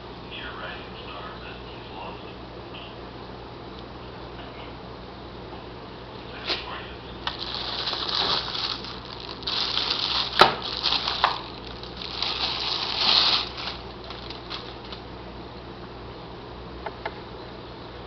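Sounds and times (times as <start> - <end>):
plastic bags crinkling: 7.2 - 15.1.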